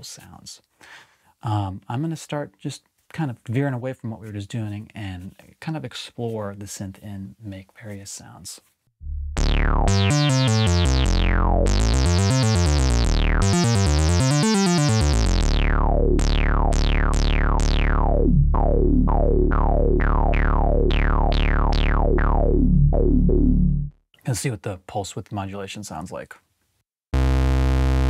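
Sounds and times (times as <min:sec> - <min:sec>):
falling synth filter sweeps: 0:09.0 - 0:23.9
synthesizer bass note: 0:09.0 - 0:24.0, 0:27.2 - 0:28.0.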